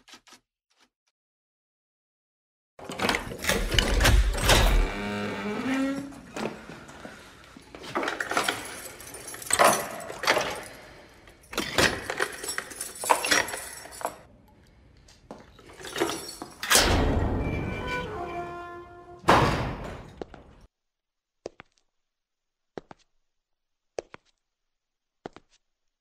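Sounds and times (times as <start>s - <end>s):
keys jangling: 7.9s - 14.3s.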